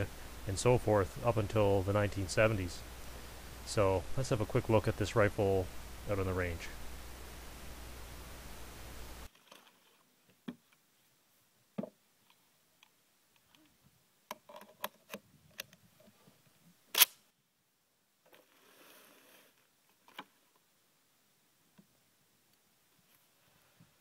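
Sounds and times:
soft rustle: 6.4s - 11.5s, 18.2s - 20.7s, 21.6s - 24.0s.

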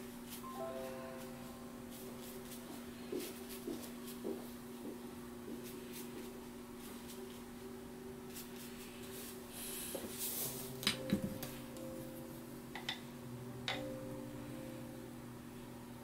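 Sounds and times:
low steady hum: 0.0s - 16.0s
brush strokes on paper: 0.2s - 4.2s.

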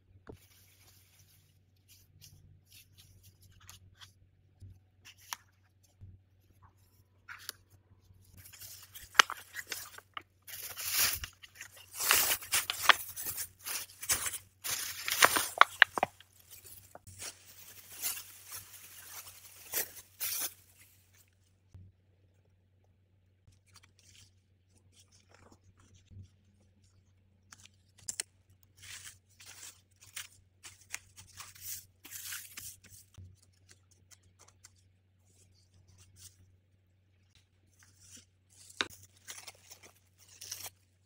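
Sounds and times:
plastic film crinkling: 8.3s - 21.2s.

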